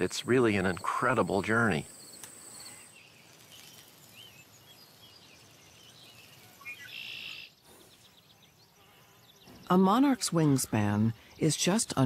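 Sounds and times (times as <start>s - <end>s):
buzzy bird trill: 0.1s - 7.6s
bird chirps and whistles: 6.6s - 7.5s.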